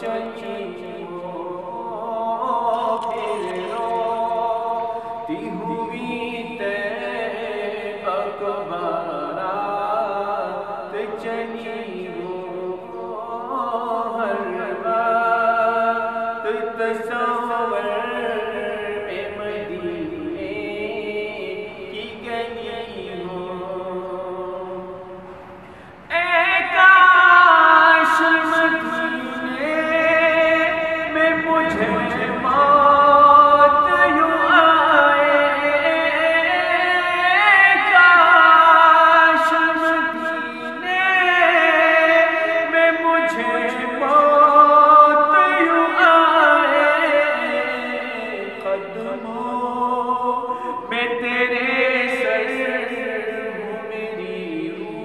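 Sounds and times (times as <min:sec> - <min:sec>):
lead voice singing devotional song: 0:00.0 - 0:55.0
background voices singing: 0:26.0 - 0:38.5.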